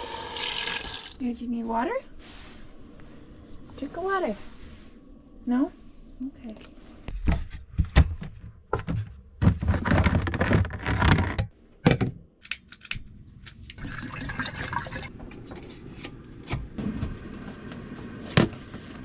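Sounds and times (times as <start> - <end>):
water pouring into container: 0.0 - 1.2, 13.8 - 15.1.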